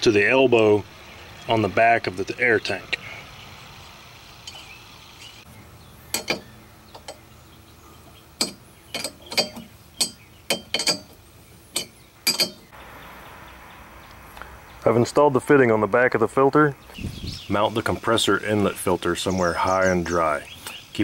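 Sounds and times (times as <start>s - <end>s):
sharp metallic clicks and clinks: 6.1s - 7.2s, 8.4s - 12.7s.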